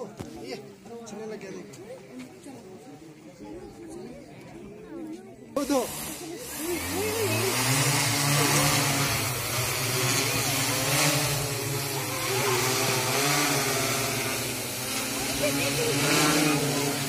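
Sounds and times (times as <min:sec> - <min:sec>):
drone rotors humming: 0:05.6 - 0:17.0
rotor wash rushing: 0:05.6 - 0:17.0.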